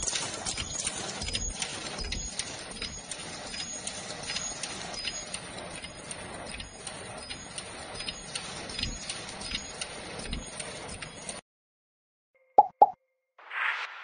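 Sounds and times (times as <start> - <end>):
sharp machine clicks: 0.0 - 11.4.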